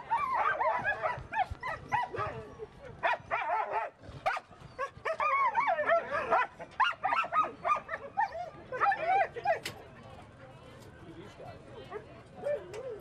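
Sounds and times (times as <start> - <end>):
dogs yipping and whining: 0.0 - 9.6.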